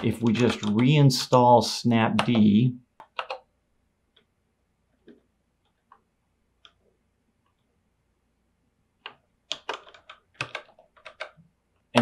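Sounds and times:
computer keyboard keystrokes: 0:00.0 - 0:00.9, 0:02.2 - 0:03.5, 0:09.0 - 0:11.4.

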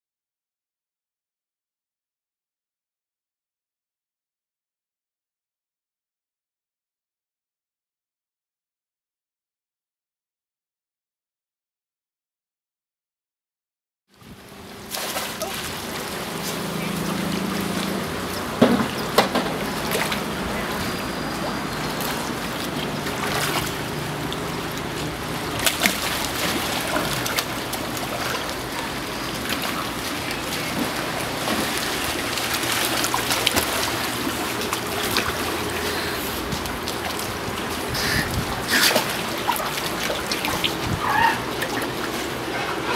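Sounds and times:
steady rush of water: 0:14.1 - 0:42.9
seals splashing in pool water: 0:14.4 - 0:42.9.

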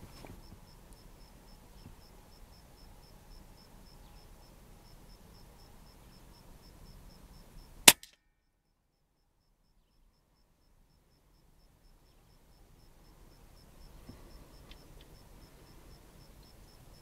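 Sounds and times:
air rifle shot: 0:07.9 - 0:08.2.

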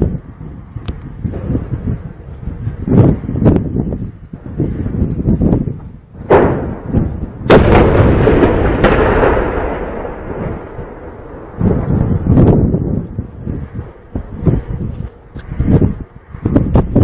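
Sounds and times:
tank cannon booms: 0:06.2 - 0:14.8.

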